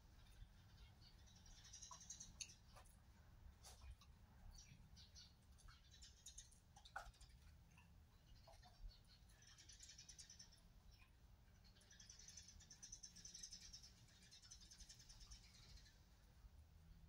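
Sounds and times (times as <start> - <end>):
small clicks and rustles: 5.4 - 10.0.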